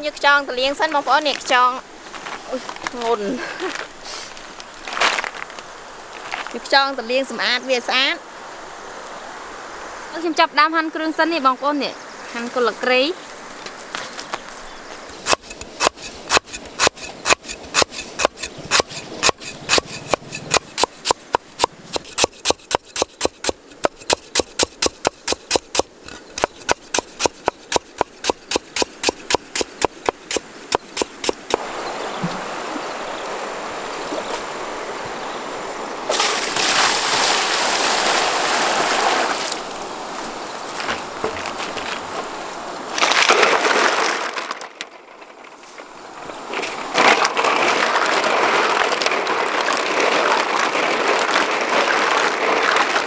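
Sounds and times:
water running and splashing: 12.3s - 44.4s, 45.9s - 53.0s
cleaver chopping on wooden board: 15.3s - 31.6s.

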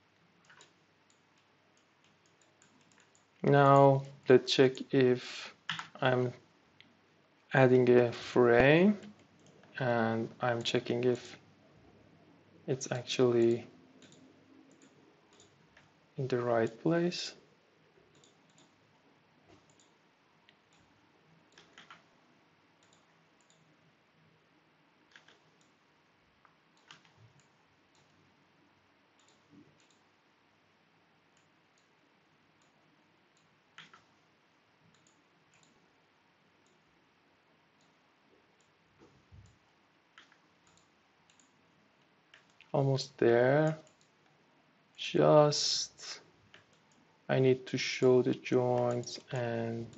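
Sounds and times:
faint computer mouse clicks: 0.4s - 3.3s, 14.0s - 15.9s, 18.1s - 18.8s, 19.5s - 20.9s, 21.5s - 22.1s, 22.8s - 23.7s, 25.1s - 25.8s, 29.2s - 30.0s, 33.4s - 34.1s, 34.9s - 35.8s, 40.2s - 41.6s, 42.3s - 42.7s.

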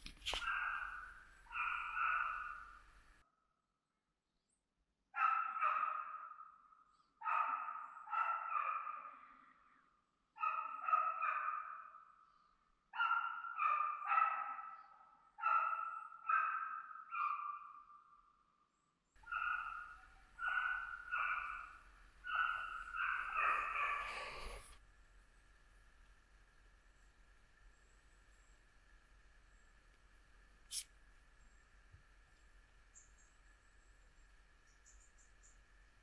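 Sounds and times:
hound baying: 0.3s - 2.8s, 19.2s - 24.7s.

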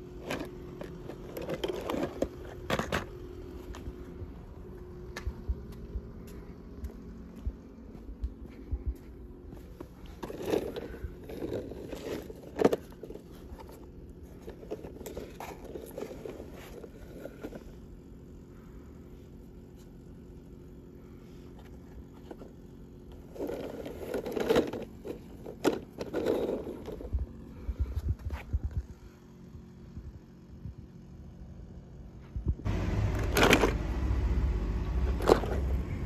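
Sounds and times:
faint steady hum: 0.0s - 36.0s
toy cars scraping across surface: 10.0s - 17.8s, 22.2s - 27.1s, 35.0s - 36.0s.

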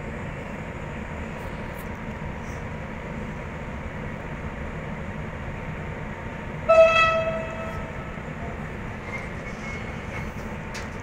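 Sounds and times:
train horn blast: 6.7s - 8.3s.

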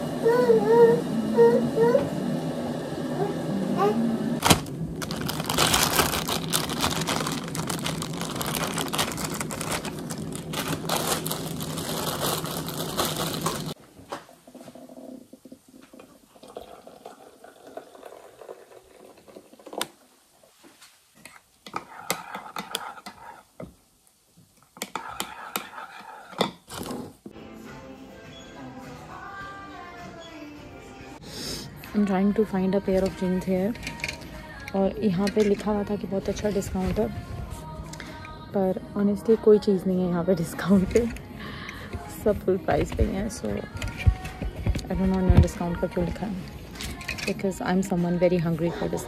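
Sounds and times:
plastic bag crinkling: 4.4s - 13.8s
water pouring from kettle: 16.0s - 19.8s.

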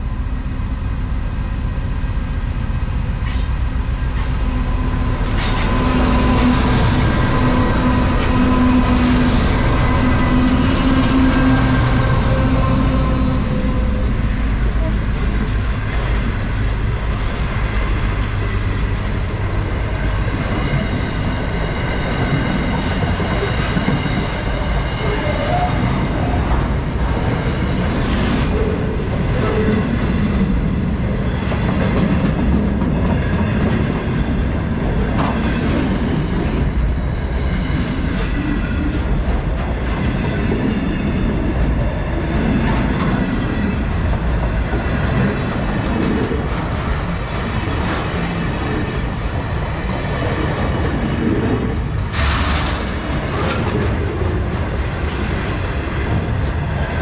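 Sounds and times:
freight train wheels rumbling: 0.0s - 57.0s
train wheel clack: 50.2s - 56.6s.

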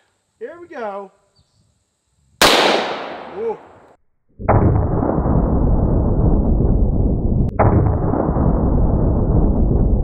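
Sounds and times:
slowed rifle shot boom: 2.4s - 3.5s, 4.3s - 10.0s
rifle shot echo: 2.4s - 3.8s.

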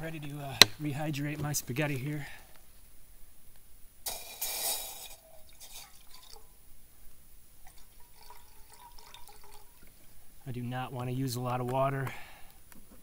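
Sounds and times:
water pouring into metal pot: 4.1s - 6.5s, 7.6s - 9.9s
faint water drips: 5.4s - 6.6s, 7.6s - 10.2s.

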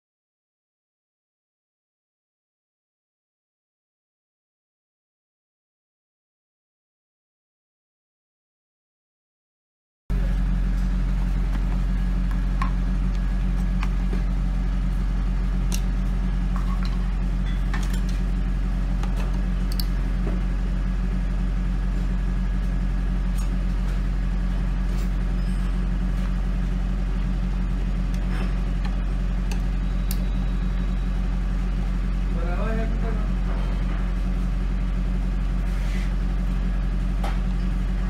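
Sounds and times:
steady low hum: 10.1s - 38.0s.

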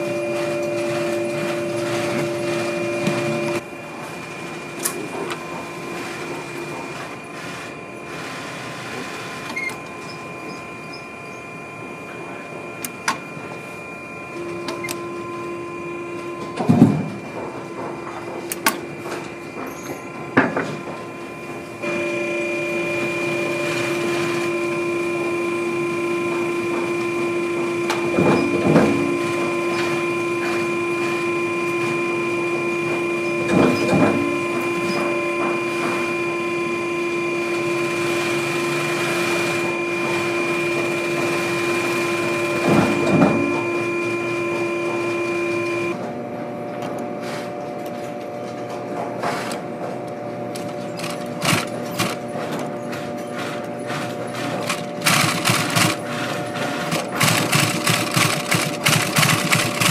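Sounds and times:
machine humming: 0.0s - 59.9s
sewing machine stitching leather: 50.6s - 59.9s.

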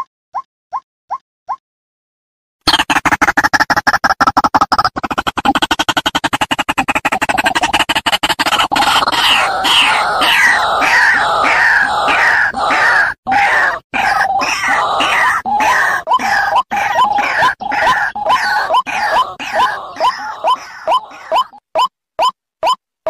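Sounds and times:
waterhen calling: 9.1s - 21.6s.

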